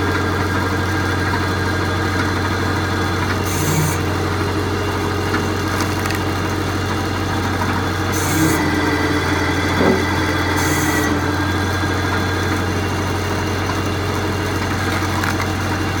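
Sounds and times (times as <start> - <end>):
hydraulic log splitter humming: 0.0 - 16.0
log splitting crack: 5.2 - 8.7, 14.5 - 16.0.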